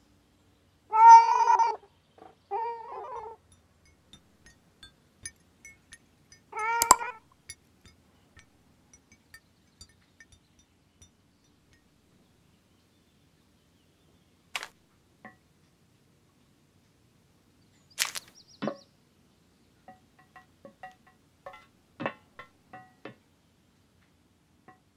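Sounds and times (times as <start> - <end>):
light ticks and taps: 3.2 - 11.9
sharp clicks: 5.2 - 7.1.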